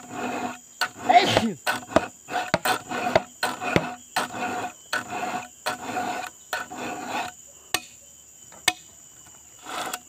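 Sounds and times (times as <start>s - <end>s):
file rasping on chainsaw chain: 0.0s - 7.4s, 9.6s - 10.0s.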